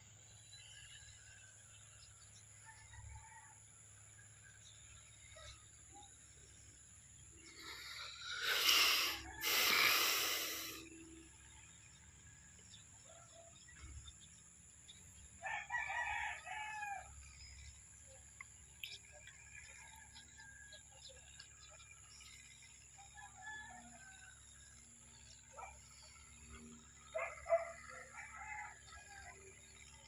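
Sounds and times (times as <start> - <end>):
rooster crowing: 15.4 - 17.1, 27.2 - 29.6.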